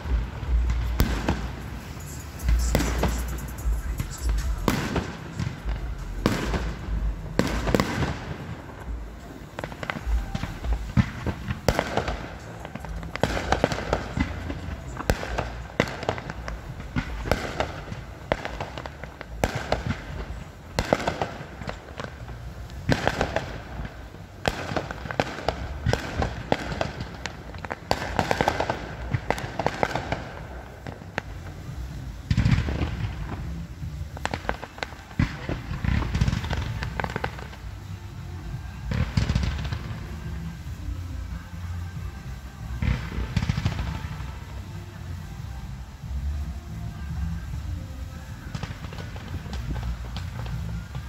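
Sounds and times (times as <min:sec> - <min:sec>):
firework shells bursting: 0:00.0 - 0:31.6.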